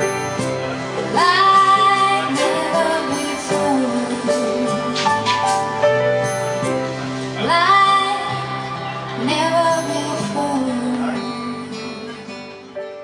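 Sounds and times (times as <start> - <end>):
piano chords: 0.0 - 13.0
woman singing: 1.1 - 5.2, 7.4 - 12.5.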